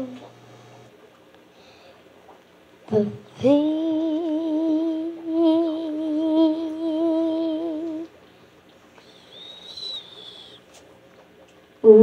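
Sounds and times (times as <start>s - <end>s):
person singing a long note: 2.9s - 8.1s.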